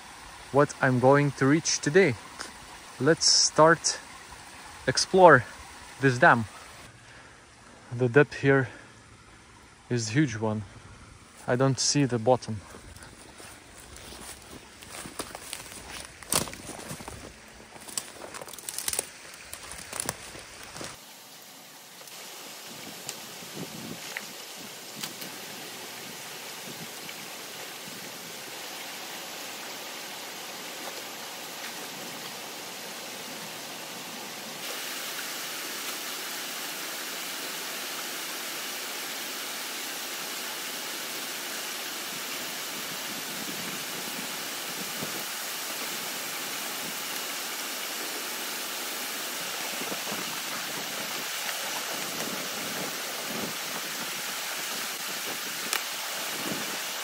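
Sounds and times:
water rushing through dam breach: 0:00.0 - 0:06.9, 0:21.0 - 0:57.0.

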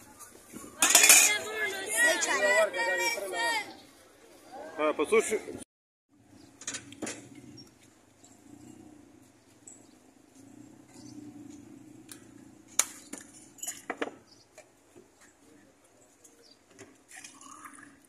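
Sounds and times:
glasses and bottles clinking: 0:00.8 - 0:01.4.

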